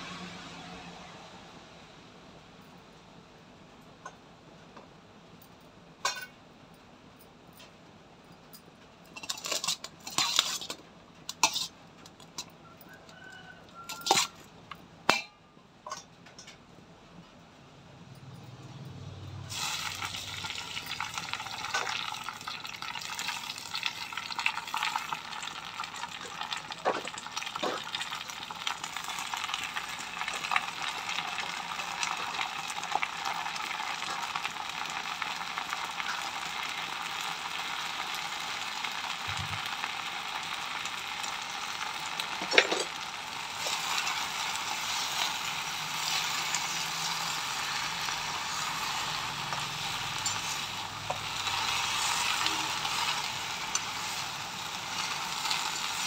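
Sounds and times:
leaves sizzling in hot oil: 0.0 - 1.5, 9.2 - 14.5, 19.3 - 56.0.

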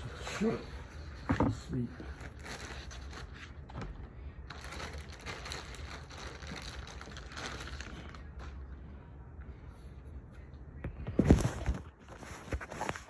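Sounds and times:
packaging rustling and crinkling: 2.1 - 3.9, 4.5 - 8.6.

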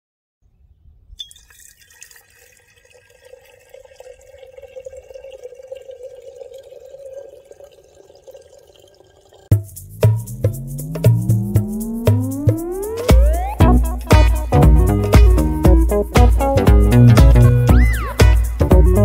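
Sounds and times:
water pouring into teapot: 1.2 - 9.5.

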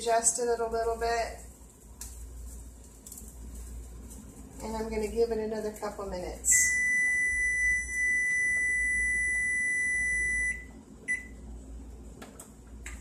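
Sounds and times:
long high timer beep: 6.5 - 11.3.

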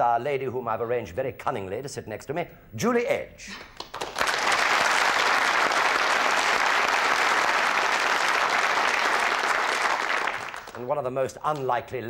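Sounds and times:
audience applauding: 3.8 - 10.9.

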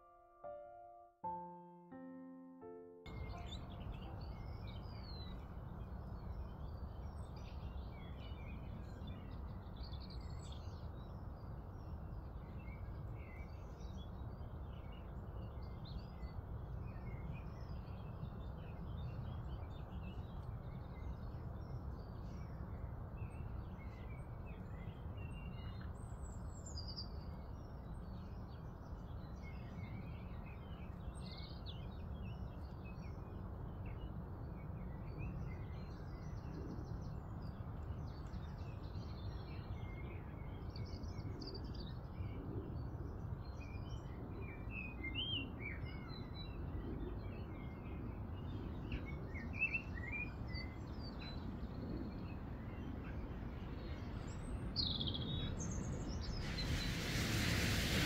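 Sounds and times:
songbirds chirping and singing: 3.1 - 5.5.

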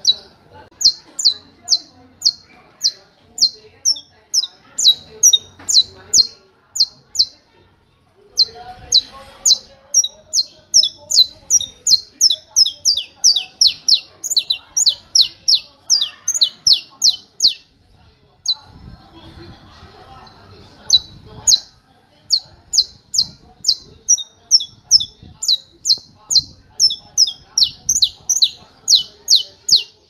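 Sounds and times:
finch singing sharp high notes: 8.4 - 17.6, 22.3 - 30.0.

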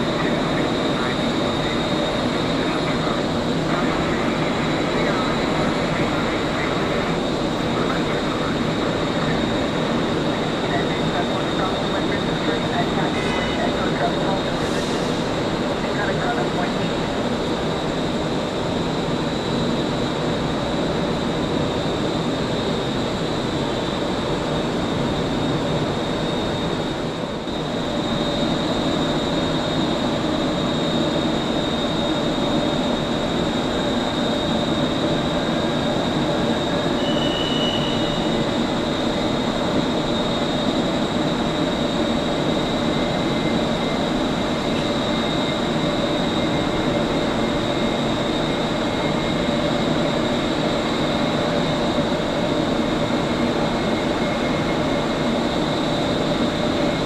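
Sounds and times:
high even whine: 0.0 - 57.0.

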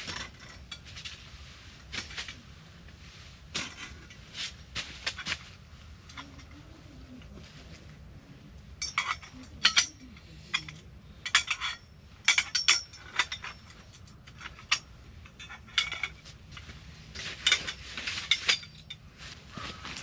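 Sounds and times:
dishes and utensils clinking: 8.8 - 16.2.

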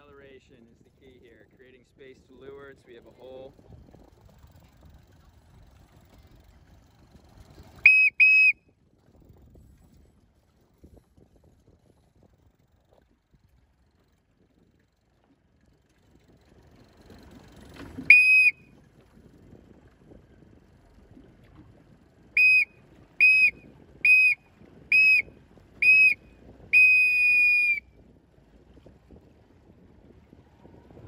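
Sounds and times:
faint wind: 0.0 - 31.0
water noise: 0.0 - 31.0
whistle blasts: 7.8 - 8.6, 18.1 - 18.7, 22.4 - 27.9.

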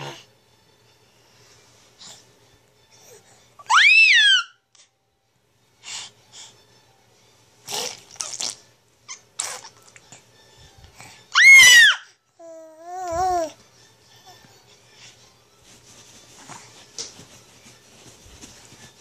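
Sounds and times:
infant happy scream: 3.6 - 4.6, 11.3 - 12.1
infant cooing: 12.4 - 13.6.

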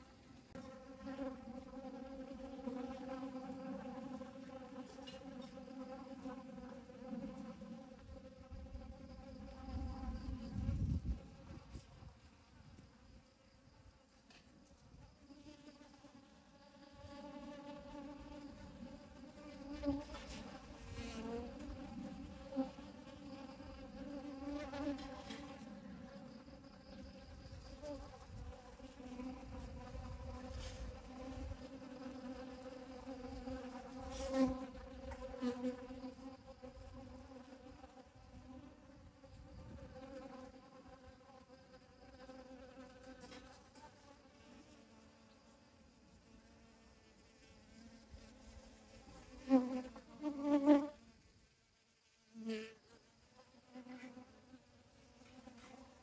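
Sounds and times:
bees buzzing: 0.1 - 11.6, 15.3 - 51.1.

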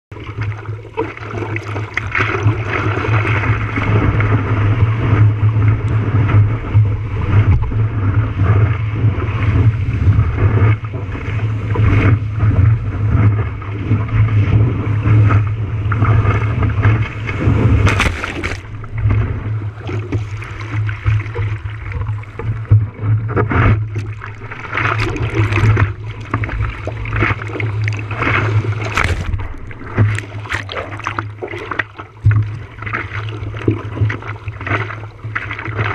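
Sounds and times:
seawater rushing and splashing: 0.1 - 35.9
steady low rumble: 2.5 - 34.3
loud water splash: 16.0 - 22.4, 23.7 - 33.3.

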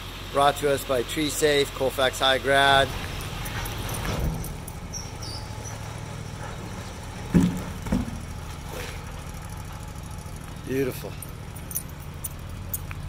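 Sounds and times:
dump truck engine running: 0.0 - 13.0
logs thudding onto pavement: 7.2 - 9.0.

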